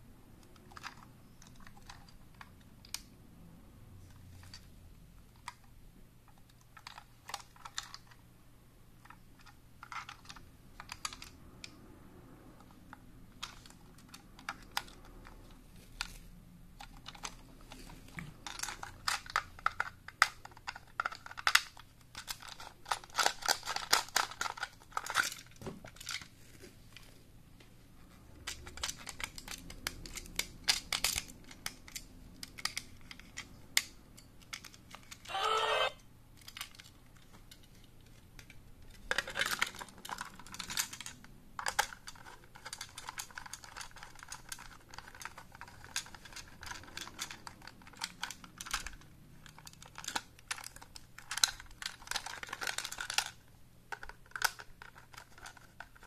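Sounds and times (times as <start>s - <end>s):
plastic toy train clicks and taps: 9.0s - 11.8s, 16.8s - 26.2s, 28.3s - 35.3s, 36.4s - 56.0s.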